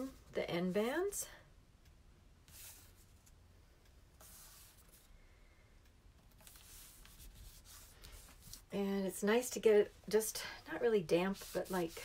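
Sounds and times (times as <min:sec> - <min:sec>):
fingertips rubbing paper: 0:06.4 - 0:08.7, 0:11.1 - 0:12.0.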